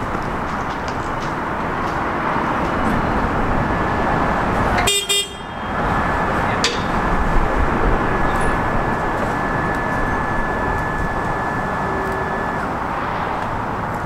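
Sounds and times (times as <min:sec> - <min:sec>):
steady mechanical rumble: 0:00.0 - 0:14.0
short horn toot: 0:09.2 - 0:13.4.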